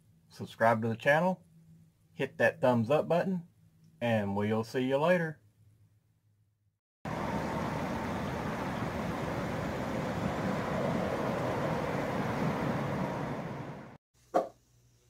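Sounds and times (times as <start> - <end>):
river flowing over rocks: 7.1 - 13.9.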